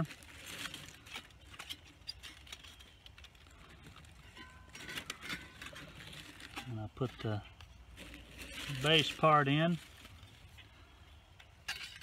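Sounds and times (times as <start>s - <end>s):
thin metal panels clinking: 11.6s - 12.0s.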